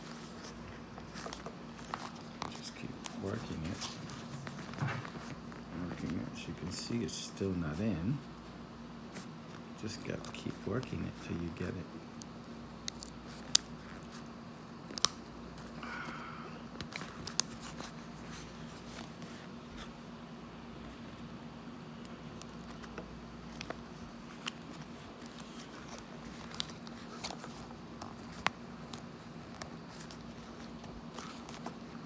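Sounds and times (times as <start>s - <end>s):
faint steady hum: 0.0s - 32.0s
rubbing and scraping on ear pad: 16.8s - 20.1s.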